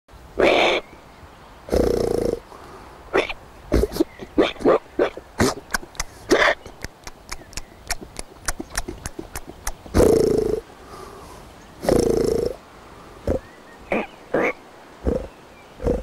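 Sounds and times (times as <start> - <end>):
man imitating boar grunts: 3.1 - 10.6, 11.8 - 12.6, 13.2 - 16.0.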